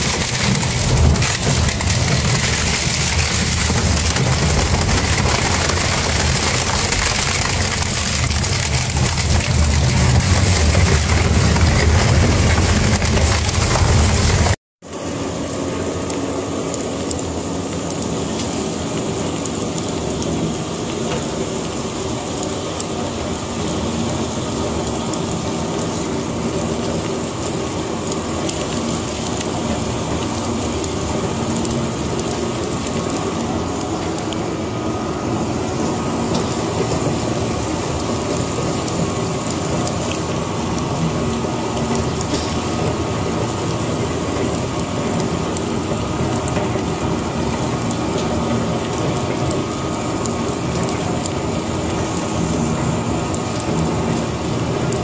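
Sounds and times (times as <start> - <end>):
shredder grinding fabric: 0.0 - 14.6.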